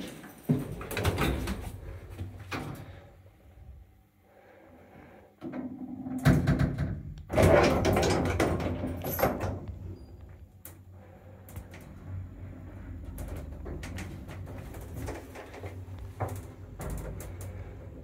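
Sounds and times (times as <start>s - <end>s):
low hum: 9.3s - 18.0s.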